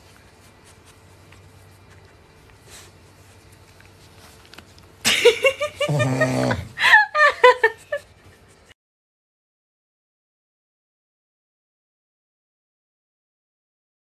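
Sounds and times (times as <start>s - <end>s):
person laughing: 5.0s - 8.2s.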